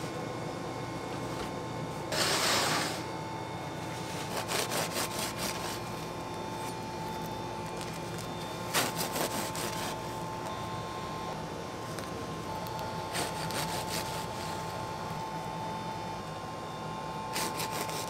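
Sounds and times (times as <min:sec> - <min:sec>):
steady hum: 0:00.0 - 0:18.0
knife sawing through bread crust: 0:04.0 - 0:05.9, 0:08.7 - 0:10.1, 0:13.1 - 0:14.7, 0:17.3 - 0:18.0.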